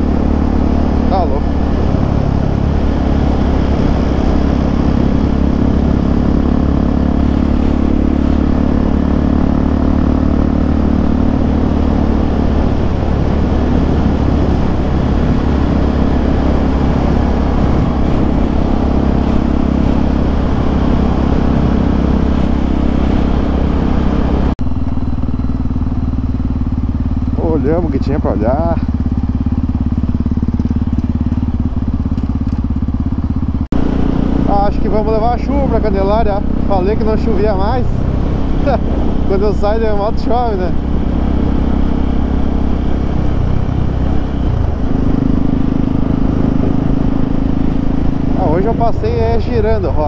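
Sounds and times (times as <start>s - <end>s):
wind rush over microphone: 0.0s - 9.5s, 10.3s - 24.6s, 33.8s - 50.0s
motorcycle engine cruising: 0.0s - 50.0s.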